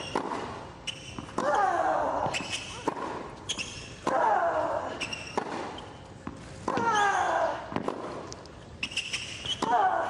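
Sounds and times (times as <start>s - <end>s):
tennis ball hits and bounces: 0.0s - 1.6s, 7.7s - 8.3s.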